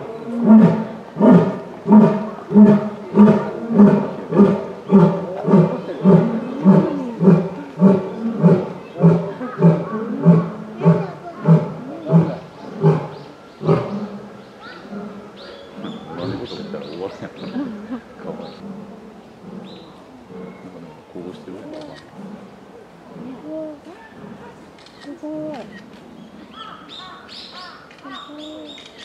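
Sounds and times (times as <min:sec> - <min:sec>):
lion roaring: 0:00.0 - 0:16.8.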